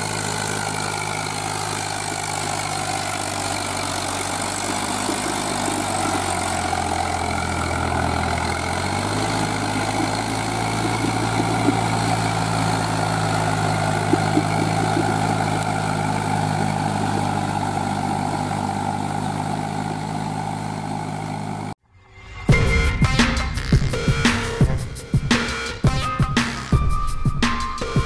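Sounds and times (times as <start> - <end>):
tractor diesel engine running: 0.0 - 21.8
music: 21.9 - 28.0.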